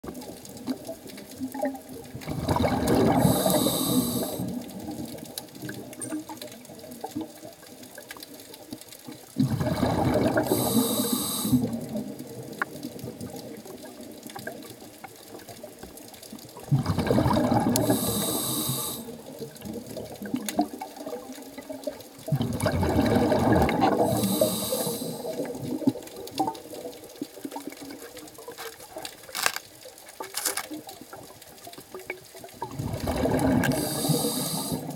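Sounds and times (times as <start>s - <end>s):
exhaled bubbles rushing: 0.1s - 5.9s, 9.4s - 14.8s, 16.5s - 28.4s, 32.0s - 34.9s
underwater hiss: 2.6s - 4.8s, 9.7s - 12.0s, 17.2s - 19.4s, 23.3s - 25.9s, 33.0s - 34.9s.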